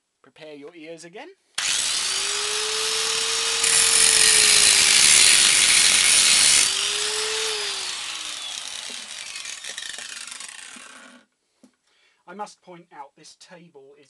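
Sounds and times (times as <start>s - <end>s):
angle grinder cutting metal: 1.6s - 11.2s
angle grinder winding down: 1.6s - 11.2s.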